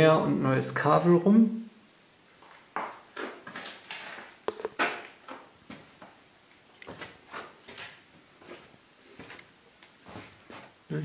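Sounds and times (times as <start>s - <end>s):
footsteps on concrete floor: 2.4s - 4.7s, 6.8s - 10.8s.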